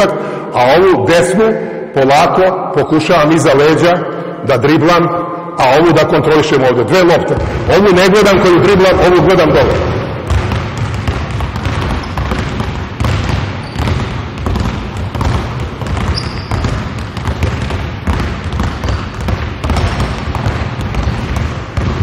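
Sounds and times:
basketballs bouncing on wooden floor: 0:07.1 - 0:22.0.

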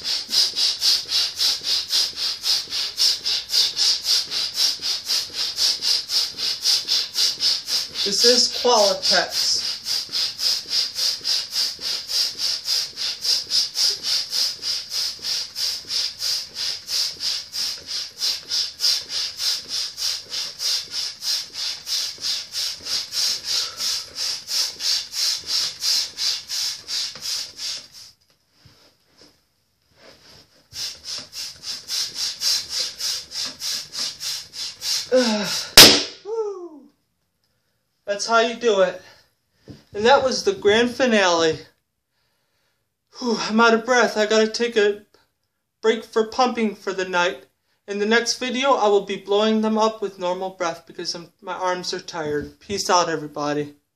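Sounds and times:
balloon pump hissing air strokes: 0:00.0 - 0:28.2, 0:30.0 - 0:36.6, 0:39.9 - 0:41.2
balloon bursting with a bang: 0:35.8 - 0:36.4.

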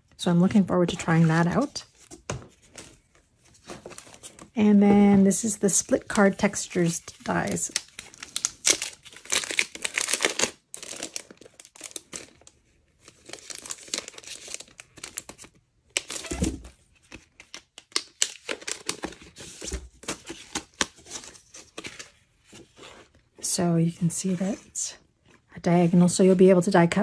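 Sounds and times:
plastic packaging crinkling and tearing: 0:06.0 - 0:22.8.

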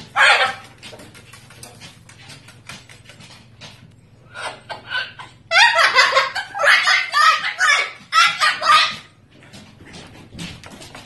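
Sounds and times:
cockatoo squawking: 0:00.0 - 0:00.8, 0:04.3 - 0:09.2.

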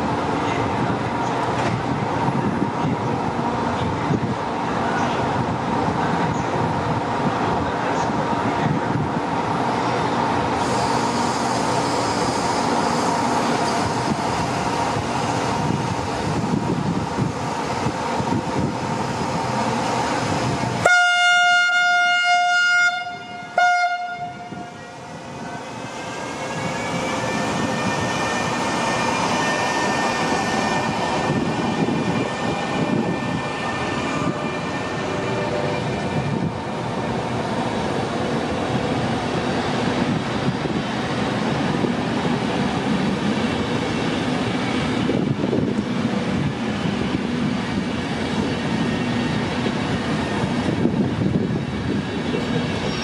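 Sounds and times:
train running noise: 0:00.0 - 0:53.0
train horn: 0:20.8 - 0:25.6
locomotive whine rising: 0:24.3 - 0:53.0.

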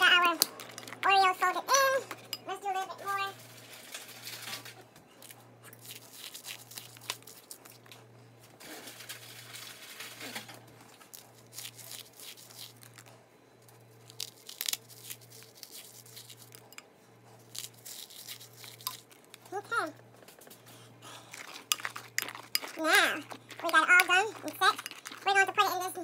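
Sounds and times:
plastic packaging crinkling: 0:05.8 - 0:07.9, 0:14.0 - 0:16.7, 0:21.3 - 0:26.0.

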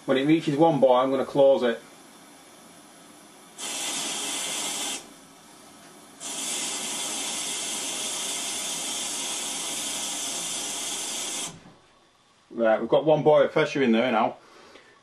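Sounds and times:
water hissing through valve: 0:03.3 - 0:11.8.

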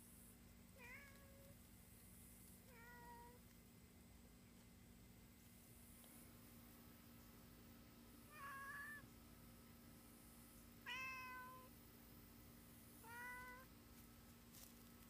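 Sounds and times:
cat meowing: 0:10.9 - 0:11.7.

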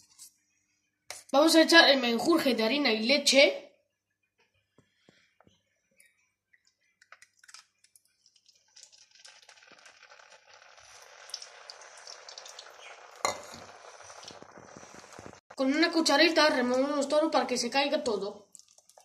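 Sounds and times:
batter sizzling in hot oil: 0:07.4 - 0:17.2.

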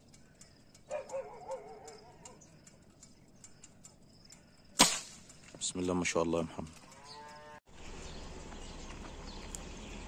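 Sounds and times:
air rifle shot: 0:04.8 - 0:05.3.

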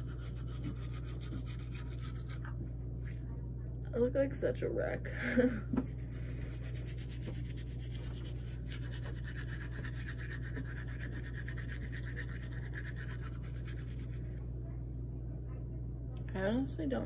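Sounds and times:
toothbrush scrubbing teeth: 0:00.0 - 0:02.6, 0:05.8 - 0:14.3
low hum: 0:00.0 - 0:17.0.

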